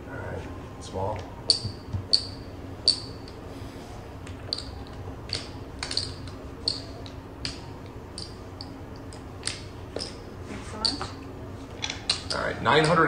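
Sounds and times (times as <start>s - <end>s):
casino chips clinking: 4.5s - 10.2s, 11.8s - 13.0s.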